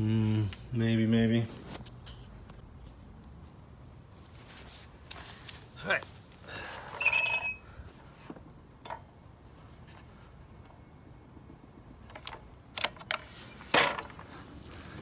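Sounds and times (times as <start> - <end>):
saw squeak: 7.0 - 7.6.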